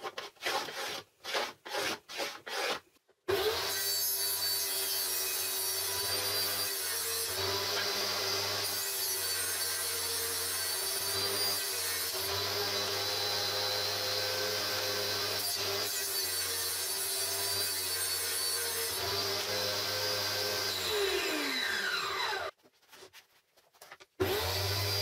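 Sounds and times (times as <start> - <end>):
rubbing and scraping: 0.0 - 3.1, 22.5 - 24.2
table saw running: 17.5 - 22.5, 24.2 - 25.0.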